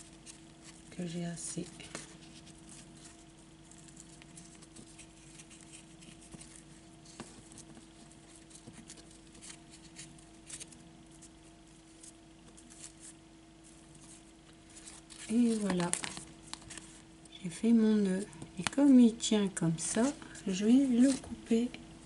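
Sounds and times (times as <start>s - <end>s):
steady low hum: 0.0s - 22.0s
ribbon rustling and clicking: 13.8s - 17.0s.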